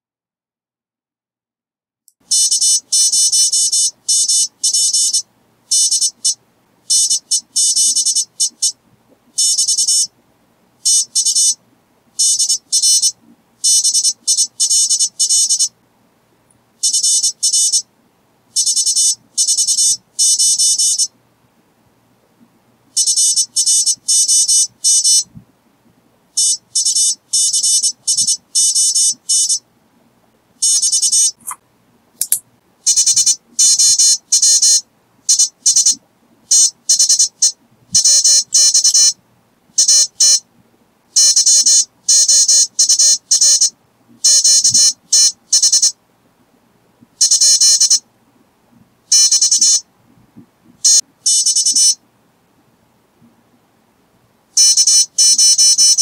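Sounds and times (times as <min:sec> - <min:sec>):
morse code beeps: 0:02.3 - 0:08.8, 0:09.4 - 0:10.1, 0:12.2 - 0:15.7, 0:16.8 - 0:17.8, 0:18.6 - 0:21.1, 0:23.0 - 0:25.3, 0:26.4 - 0:29.6, 0:30.6 - 0:31.6, 0:32.9 - 0:39.2, 0:39.8 - 0:40.4, 0:41.2 - 0:46.0, 0:47.2 - 0:48.0, 0:49.1 - 0:49.8, 0:50.8 - 0:52.0, 0:54.6 - 0:56.0.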